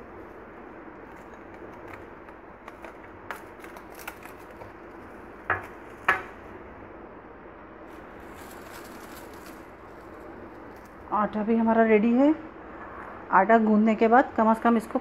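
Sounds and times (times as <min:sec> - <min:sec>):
cling film crinkling: 0:00.0 - 0:06.1, 0:07.8 - 0:11.2.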